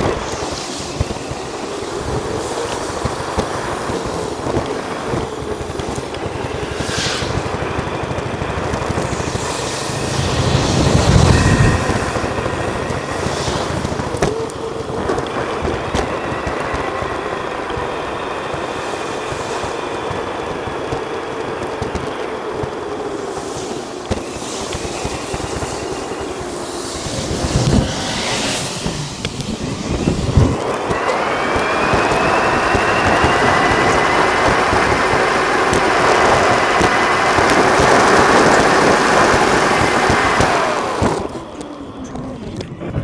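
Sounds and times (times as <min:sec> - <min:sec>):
bicycle rolling noise: 0:00.0 - 0:43.0
wind rushing on microphone: 0:00.0 - 0:43.0.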